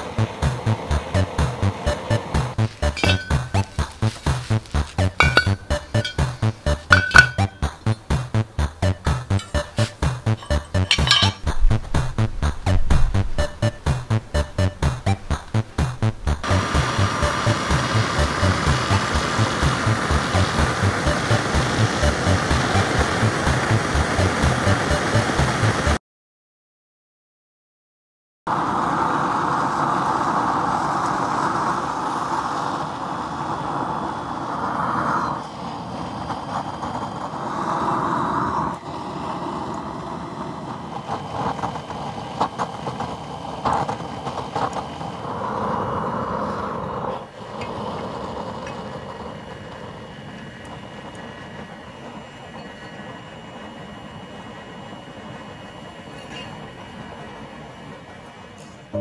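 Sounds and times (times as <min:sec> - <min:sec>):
burner flame rushing: 0:15.3 - 0:25.9, 0:28.5 - 0:51.8.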